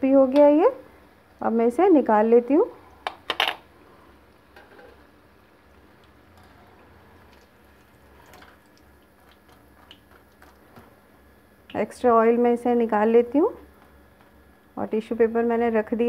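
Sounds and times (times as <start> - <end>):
deep-frying sizzle with pops: 4.2 - 12.0, 13.6 - 14.7.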